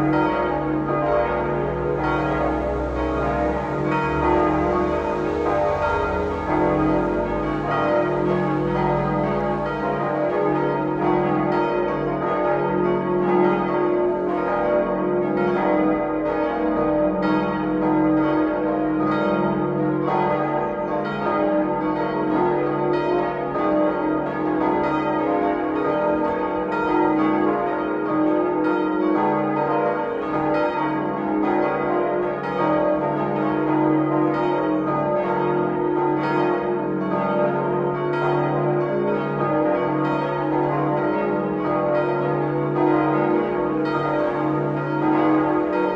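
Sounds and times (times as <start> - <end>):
church bells ringing: 0.0 - 45.9.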